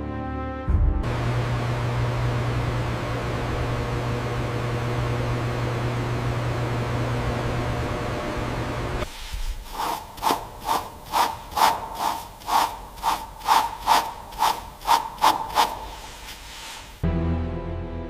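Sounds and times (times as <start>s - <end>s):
music: 0.0s - 1.1s, 17.0s - 18.0s
brush scrubbing steel: 9.1s - 17.0s.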